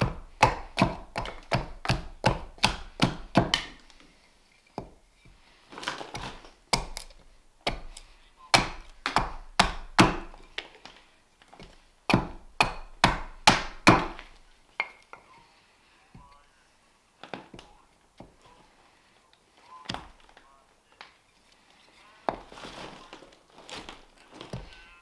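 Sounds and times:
axe chopping wood: 0:00.0 - 0:03.8, 0:06.1 - 0:10.7, 0:12.1 - 0:15.0.

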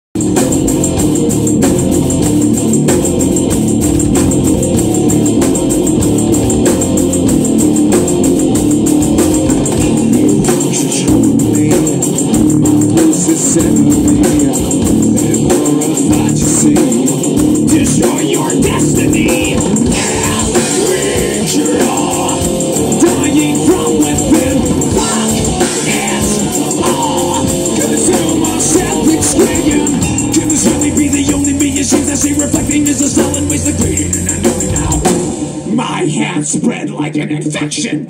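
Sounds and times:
bass guitar: 0:00.0 - 0:36.6
drum kit: 0:00.1 - 0:36.3
sustained organ-like layer: 0:00.1 - 0:36.4
electric guitar: 0:00.2 - 0:36.2.

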